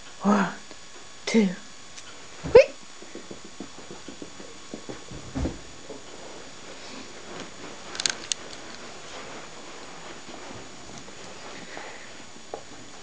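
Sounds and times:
heavy thump: 0:02.4 - 0:05.8
rustling fabric: 0:05.1 - 0:12.3.

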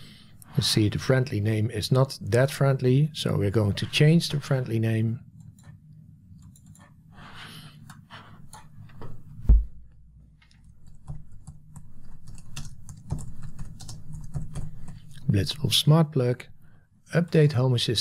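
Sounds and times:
keyboard typing: 0:06.4 - 0:07.0, 0:10.6 - 0:15.2
heavy thump: 0:09.4 - 0:09.8.

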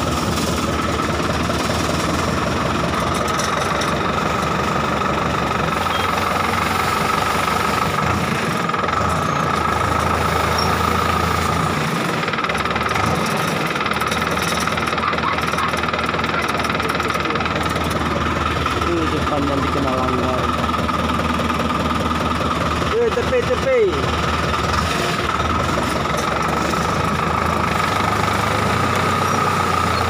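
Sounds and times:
tractor engine under load: 0:00.0 - 0:30.0.

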